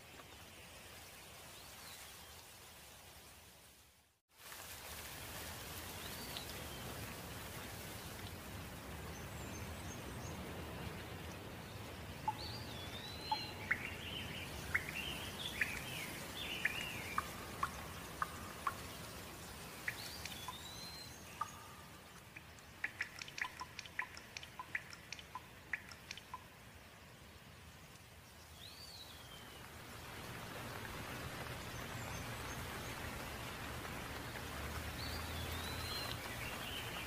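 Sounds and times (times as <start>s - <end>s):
rain falling: 0.0s - 37.0s
water dripping: 4.4s - 37.0s
birds chirping: 11.8s - 26.5s.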